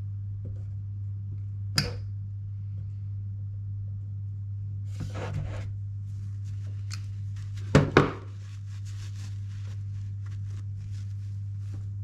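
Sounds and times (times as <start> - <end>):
steady low hum: 0.0 - 12.0
scratchy rustle: 4.9 - 12.0.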